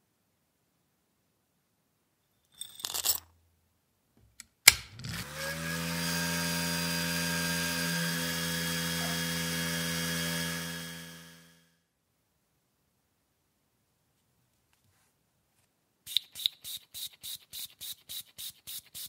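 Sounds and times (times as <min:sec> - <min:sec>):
small metal parts rattling: 0:02.5 - 0:03.3
tumbler motor humming: 0:04.9 - 0:11.6.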